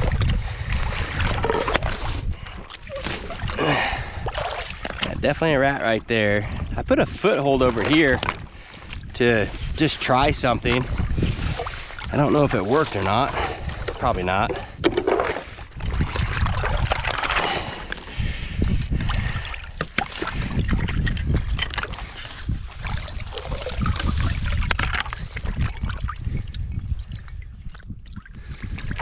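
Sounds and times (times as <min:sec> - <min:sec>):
hands splashing in muddy water: 0:00.0 - 0:05.2, 0:19.0 - 0:26.2.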